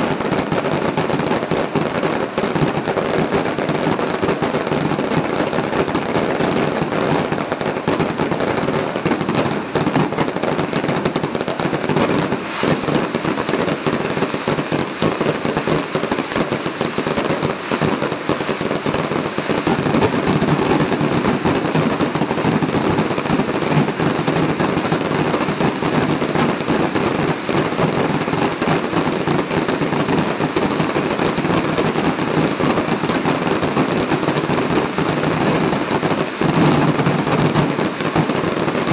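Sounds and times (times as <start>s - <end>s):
fireworks bangs and crackling: 0.0s - 38.9s.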